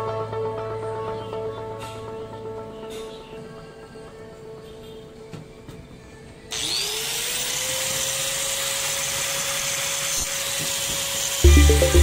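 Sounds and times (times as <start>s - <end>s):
power tool motor whining: 6.5s - 12.0s.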